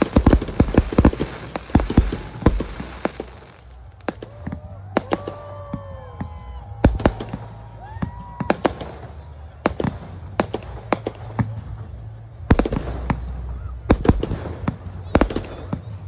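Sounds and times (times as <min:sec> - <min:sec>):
firework shells bursting: 0:00.0 - 0:04.2.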